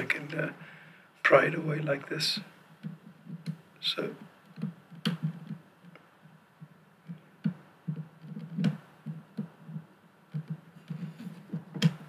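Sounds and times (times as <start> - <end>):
sharp plastic clicks: 4.4 - 6.0.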